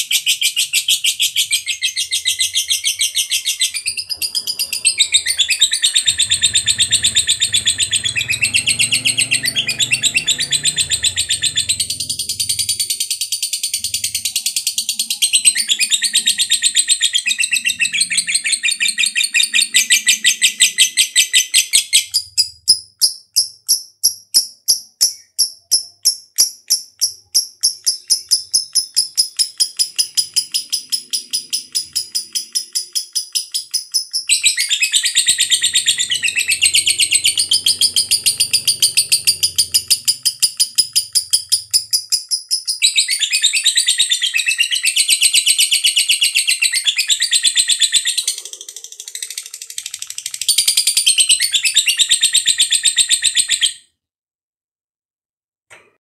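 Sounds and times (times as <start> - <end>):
lovebird chattering trill: 0.0 - 53.7.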